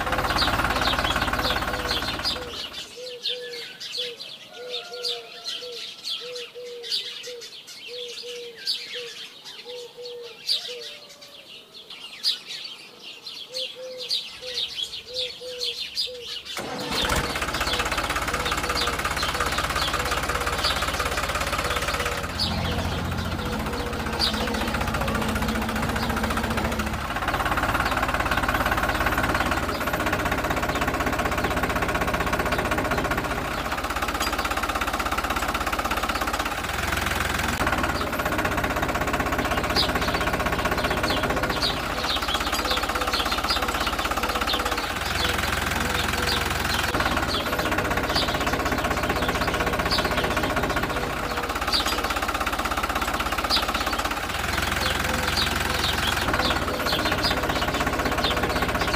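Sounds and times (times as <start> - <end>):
rattling engine running: 0.0 - 3.1, 16.5 - 58.9
small birds chirping: 0.0 - 58.9.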